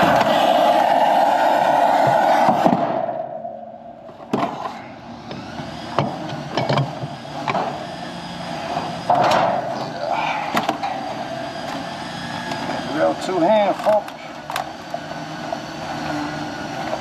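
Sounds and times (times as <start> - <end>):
steady background noise: 0.0 - 17.0
knocks and clatter: 6.0 - 7.7, 9.1 - 9.9.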